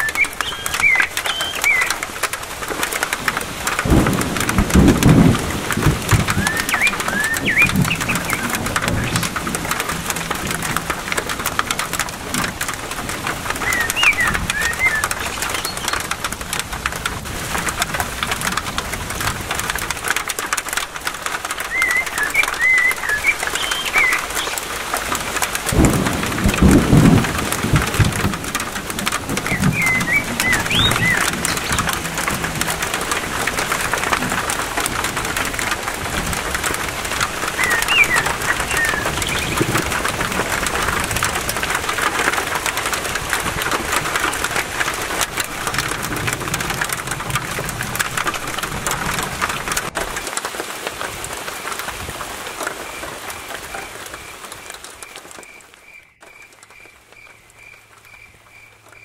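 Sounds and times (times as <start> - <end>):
bird chirps: 0.0 - 2.0, 6.4 - 9.2, 13.6 - 16.0, 21.7 - 24.6, 29.4 - 31.9, 37.6 - 39.9
steady rain falling: 0.0 - 59.0
thunder rumbling: 2.6 - 20.1, 23.4 - 50.2.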